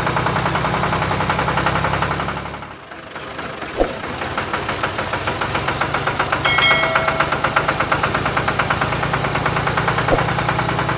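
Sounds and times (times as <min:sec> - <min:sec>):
tractor engine idling: 0:00.0 - 0:10.9
bright chime: 0:06.4 - 0:07.9.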